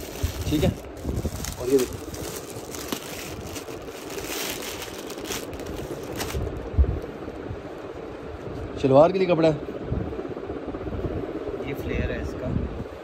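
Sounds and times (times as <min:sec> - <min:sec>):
fabric and packaging rustling: 0:00.0 - 0:07.1.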